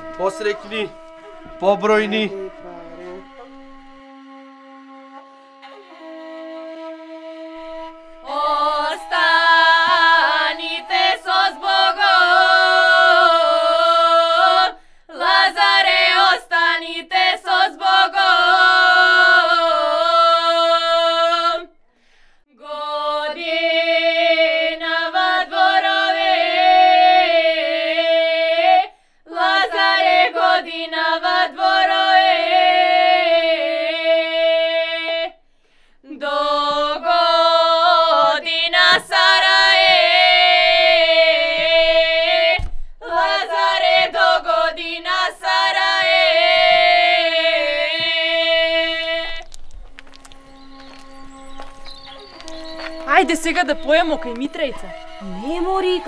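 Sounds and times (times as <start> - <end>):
girls singing a cappella: 8.2 - 21.7, 22.5 - 35.4, 36.0 - 49.6.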